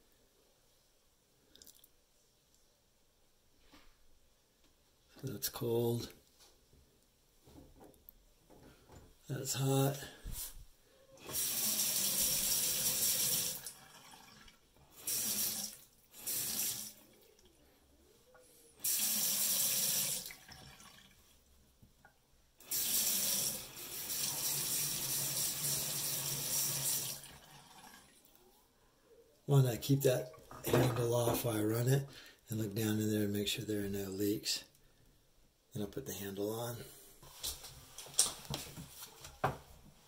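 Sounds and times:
faucet water running into sink: 11.2 - 17.0, 18.8 - 21.2, 22.6 - 28.1.

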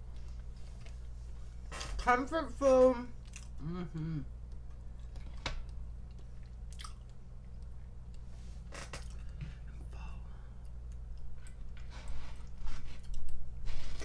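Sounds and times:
steady low hum: 0.0 - 14.0
person chewing: 3.2 - 14.0
crackly mouth clicks: 4.5 - 8.2.

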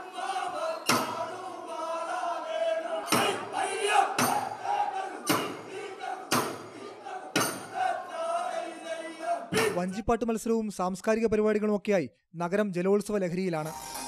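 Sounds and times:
men singing in chorus: 0.0 - 9.6.

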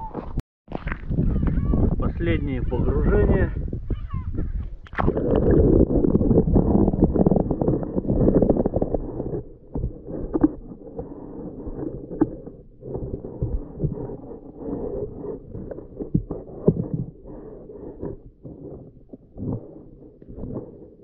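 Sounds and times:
underwater bubbling and rumbling: 0.0 - 21.0
scattered underwater clicks: 4.6 - 21.0.

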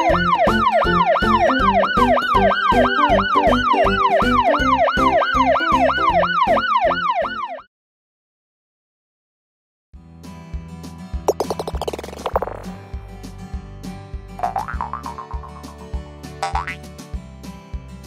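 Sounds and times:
cartoon siren wailing: 0.0 - 7.7
backing music beat: 14.4 - 16.8.

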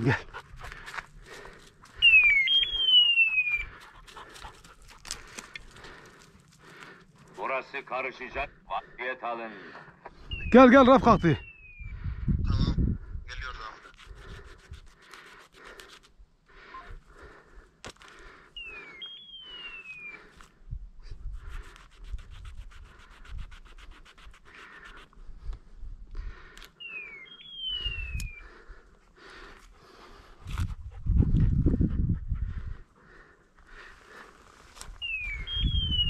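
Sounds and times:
dog panting: 0.0 - 2.0, 3.3 - 7.5, 28.6 - 34.3
two-part falling whistle: 2.0 - 3.7.

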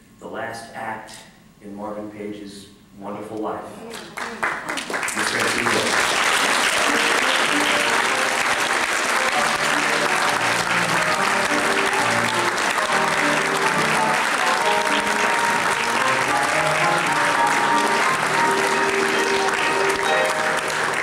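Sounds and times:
audience applauding: 3.9 - 21.0
music playing: 5.9 - 21.0.

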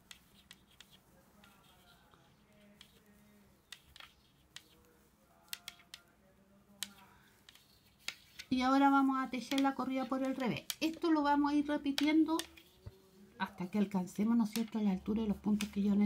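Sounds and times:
knitting needles clicking: 0.0 - 1.7, 3.7 - 4.8, 5.4 - 6.1, 6.8 - 12.8, 13.6 - 16.0.

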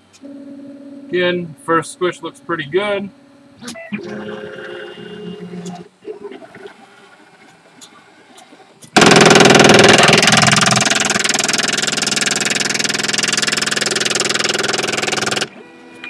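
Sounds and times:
faint stepper motor whine: 0.0 - 9.0
loud mechanical buzzing: 9.0 - 15.5.

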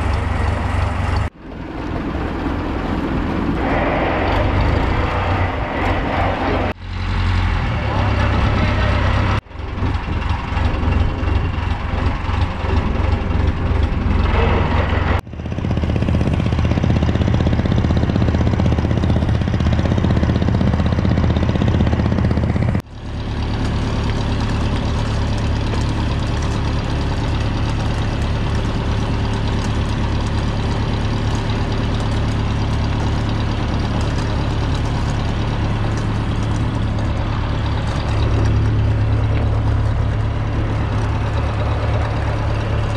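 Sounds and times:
rushing wind: 0.0 - 22.8
boat engine droning: 0.0 - 42.9
water noise: 0.0 - 42.9.

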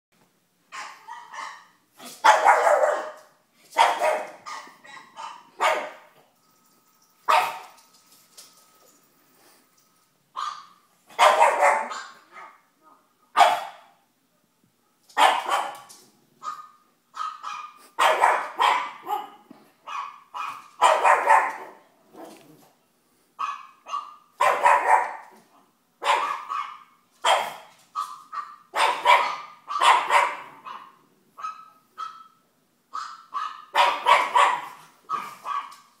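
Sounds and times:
dog barking and yapping: 0.7 - 6.1, 7.3 - 7.8, 10.4 - 12.6, 15.1 - 22.5, 23.4 - 25.4, 26.0 - 36.0.

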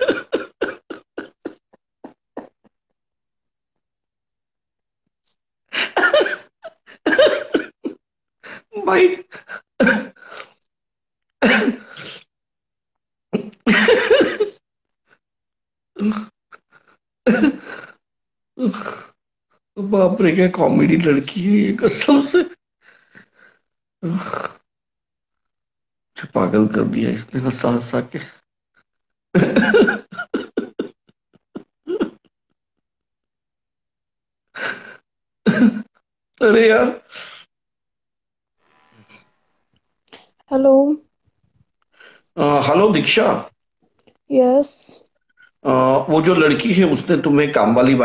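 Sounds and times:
man laughing hard: 5.8 - 8.0, 13.7 - 14.6, 29.4 - 32.3
man laughing: 29.4 - 32.3.

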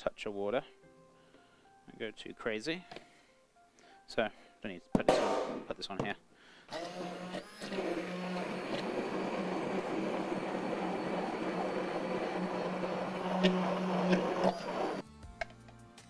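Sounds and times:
immersion blender running: 6.7 - 15.0.

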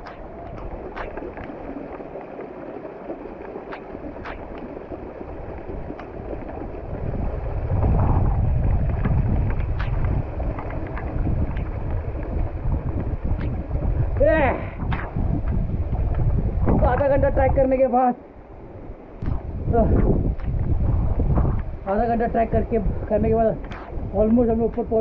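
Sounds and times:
wind buffeting microphone: 0.0 - 25.0
sharp clicks and taps: 9.0 - 11.8.

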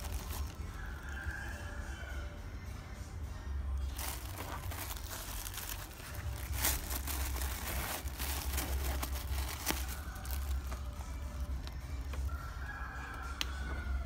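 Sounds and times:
tissue paper crinkling: 0.0 - 1.3, 3.8 - 12.4.

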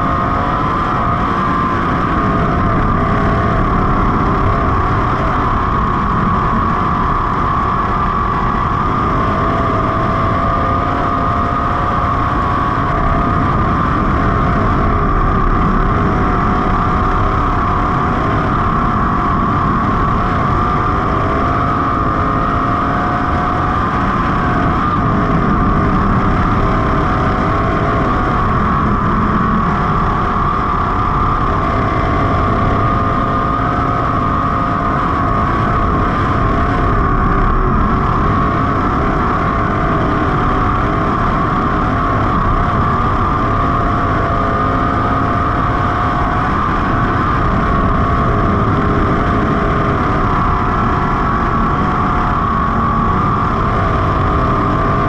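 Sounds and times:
race car engine running hard: 0.0 - 55.0.

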